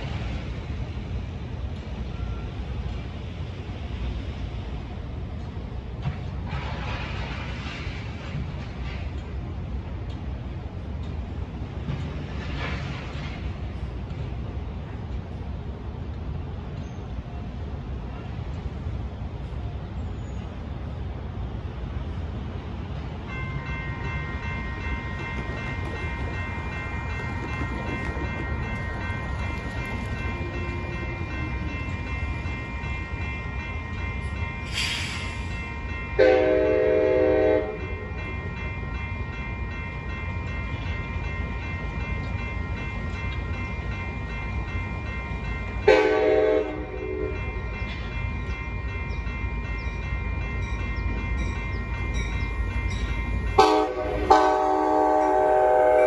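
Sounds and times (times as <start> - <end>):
railroad crossing bells ringing: 0.0 - 56.0
train low rumble: 0.0 - 56.0
train horn blasts: 36.2 - 38.1, 45.8 - 47.5, 53.6 - 56.0.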